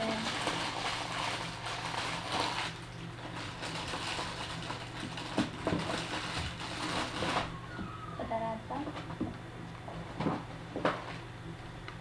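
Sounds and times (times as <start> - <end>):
plastic bag crinkling: 0.0 - 7.8
steady low hum: 0.0 - 12.0.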